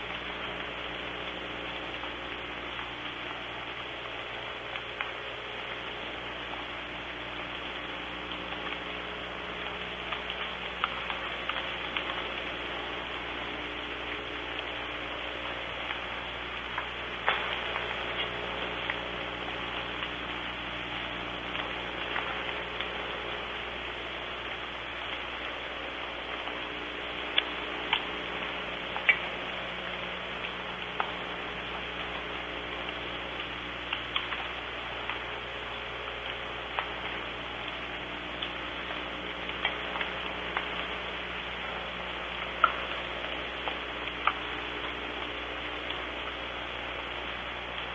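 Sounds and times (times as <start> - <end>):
raindrops ticking: 0.0 - 47.9
soft rain falling: 0.0 - 47.9.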